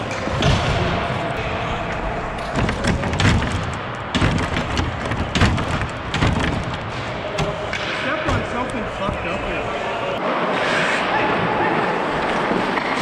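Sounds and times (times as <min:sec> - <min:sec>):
glass door knocks and latch clicks: 0:02.6 - 0:06.8.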